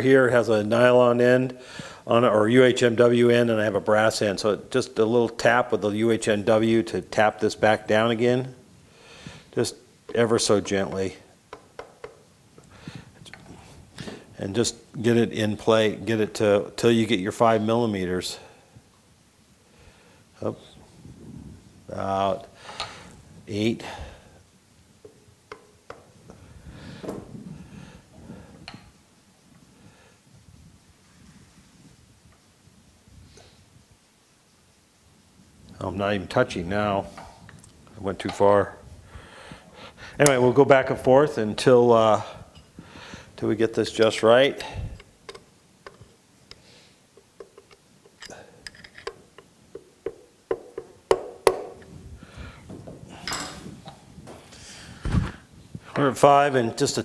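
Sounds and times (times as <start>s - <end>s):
tools handling and rustling: 44.7s - 56.1s.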